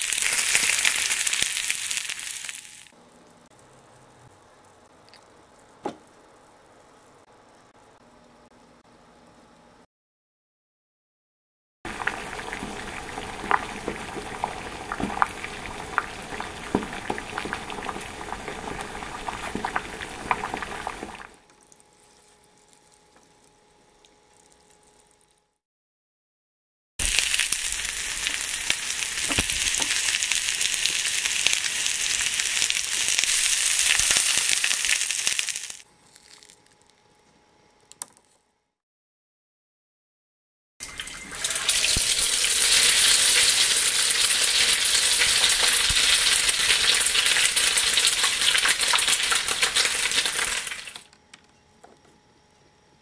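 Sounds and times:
frying sizzle: 0:00.0 - 0:03.0, 0:11.9 - 0:21.4, 0:27.0 - 0:35.8, 0:40.8 - 0:51.1
water boiling and bubbling: 0:00.0 - 0:03.0, 0:11.9 - 0:24.8, 0:27.0 - 0:35.8, 0:40.8 - 0:51.1.

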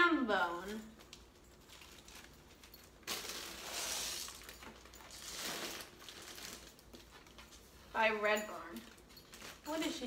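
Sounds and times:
tissue paper rustling: 0:00.6 - 0:08.0.

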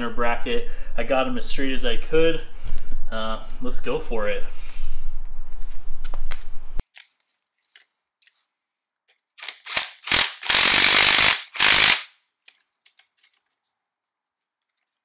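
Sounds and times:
impact wrench hammering: 0:09.4 - 0:12.2.

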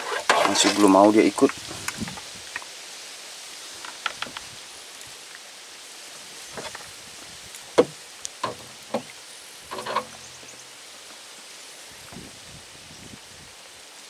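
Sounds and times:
background hiss: 0:00.0 - 0:14.0
fishing gear knocking and clattering: 0:07.8 - 0:09.1, 0:09.7 - 0:10.3.

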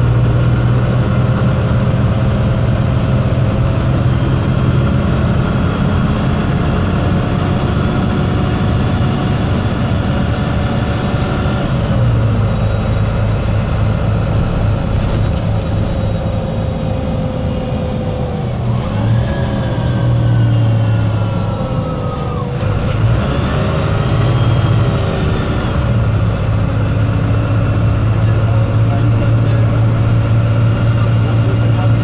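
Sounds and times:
bus diesel engine idling: 0:00.0 - 0:32.0
rising and falling whine: 0:01.4 - 0:28.0.

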